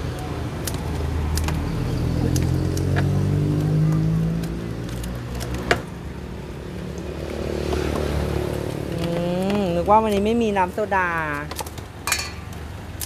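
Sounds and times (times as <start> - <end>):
vehicle engine pulling away: 1.1 - 9.5.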